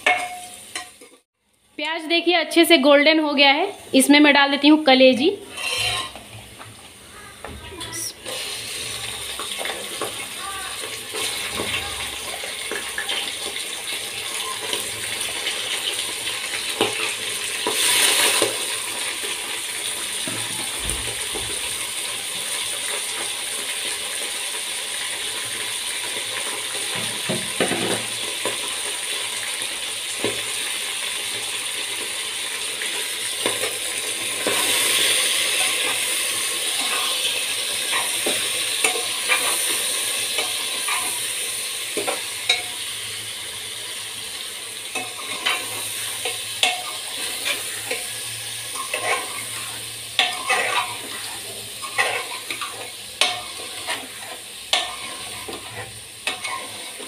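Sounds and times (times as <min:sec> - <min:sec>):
spoon scraping and clinking pot: 0:00.0 - 0:01.2, 0:05.5 - 0:06.2, 0:48.8 - 0:49.4, 0:50.2 - 0:56.8
meat sizzling in hot oil: 0:00.0 - 0:07.4, 0:08.0 - 0:57.0.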